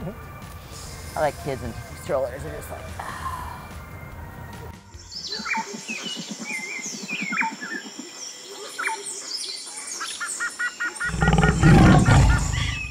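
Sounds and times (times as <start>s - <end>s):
birds chirping: 0.0s - 12.9s
big cat roaring: 11.1s - 12.9s.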